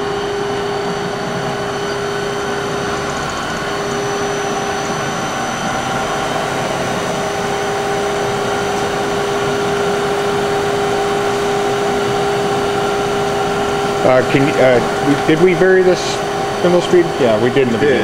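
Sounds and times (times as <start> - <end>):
grinder machine hum: 0.0 - 18.0.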